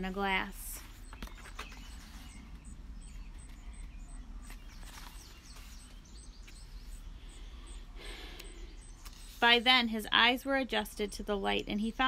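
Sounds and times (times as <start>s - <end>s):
outdoor background noise: 0.0s - 12.0s
book pages rustling: 0.8s - 2.6s, 4.4s - 6.6s.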